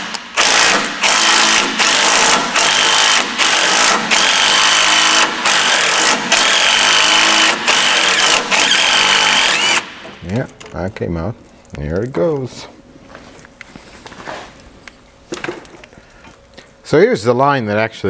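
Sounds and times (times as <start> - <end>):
power wrench bursts: 0.0 - 10.1
motor whine: 6.4 - 10.0.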